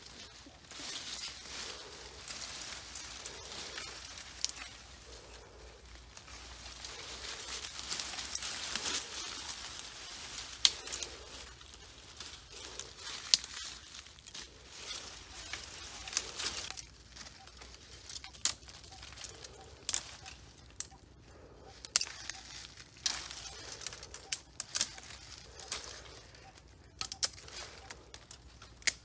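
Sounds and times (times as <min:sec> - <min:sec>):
leaves rustling: 0:00.0 - 0:29.0
thin branches cracking: 0:00.0 - 0:29.0
sharp snaps of branches: 0:12.8 - 0:13.9, 0:21.7 - 0:26.1, 0:26.9 - 0:29.0.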